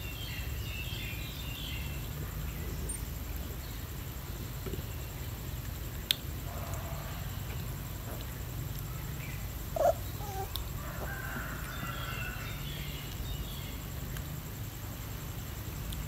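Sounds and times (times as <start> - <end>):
high chirping calls: 9.1 - 10.6
animal call: 9.7 - 13.0.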